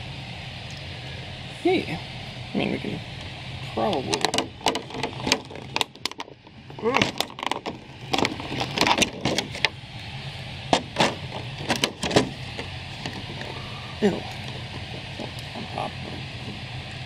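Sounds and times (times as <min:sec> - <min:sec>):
plastic packaging crinkling: 0:04.2 - 0:09.7.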